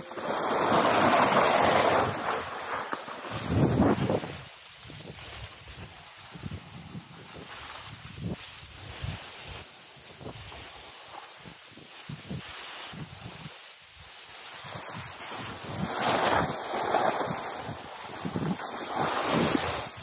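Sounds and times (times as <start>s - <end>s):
snowboard scraping over packed snow: 0.0s - 20.0s
wind buffeting microphone: 3.3s - 10.6s.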